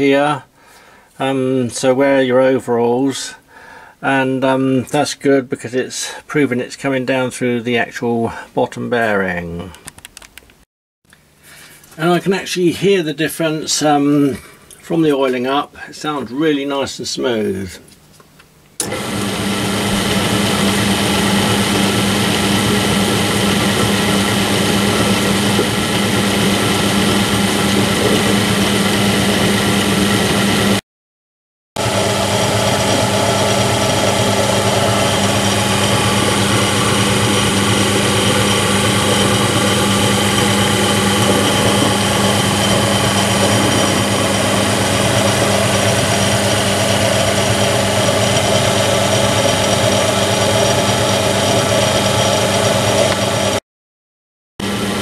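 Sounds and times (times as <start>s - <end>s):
pillar drill running: 18.8s - 30.8s, 31.8s - 53.6s, 54.6s - 55.0s.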